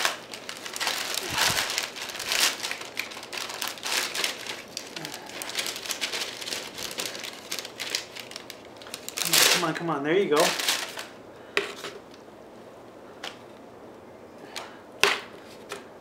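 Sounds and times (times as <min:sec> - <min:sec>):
paper crinkling and rustling: 0:00.0 - 0:11.2.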